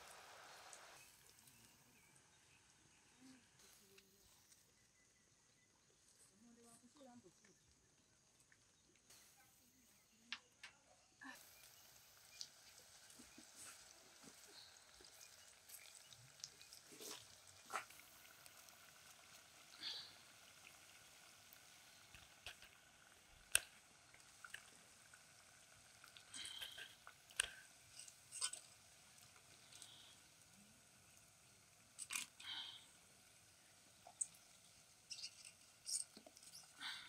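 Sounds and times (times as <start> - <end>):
oil sizzling: 0.0 - 2.8, 11.3 - 37.0.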